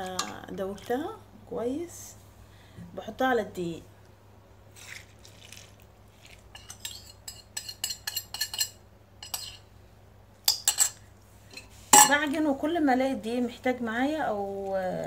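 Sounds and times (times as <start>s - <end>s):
spoon and bowl clinking: 6.5s - 9.6s, 10.5s - 11.0s.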